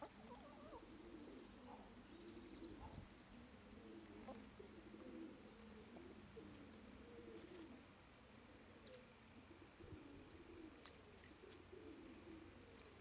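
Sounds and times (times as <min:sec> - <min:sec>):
chicken murmuring calls: 0:00.0 - 0:07.9.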